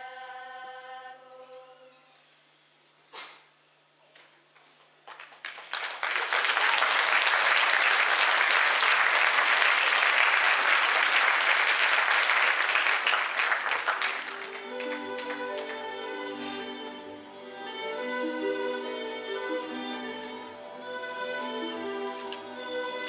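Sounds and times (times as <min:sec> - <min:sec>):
audience applause: 0:05.0 - 0:16.1
instrumental music: 0:14.2 - 0:23.0.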